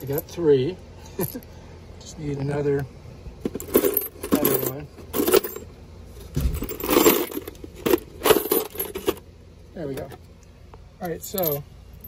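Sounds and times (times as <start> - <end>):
metal screws jangling in plastic tub: 3.5 - 5.7, 6.6 - 9.2, 11.0 - 11.6.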